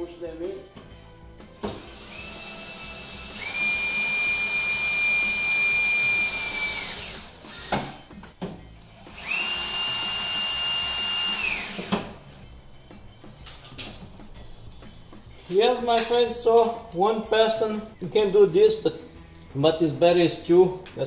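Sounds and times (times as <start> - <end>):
drill motor whine: 1.9 - 8.0, 9.1 - 11.9.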